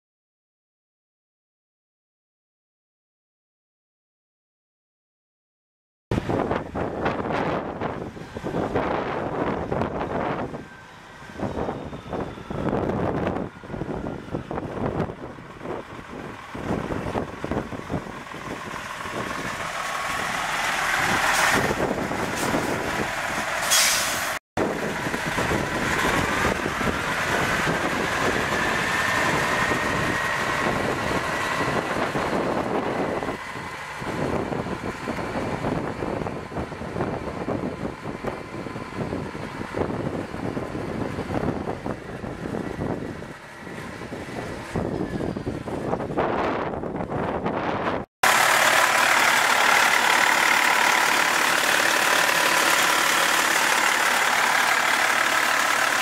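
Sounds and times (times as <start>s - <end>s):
diesel truck engine: 6.1s - 56.0s
engine whine: 6.1s - 56.0s
air brake hiss: 23.6s - 24.4s.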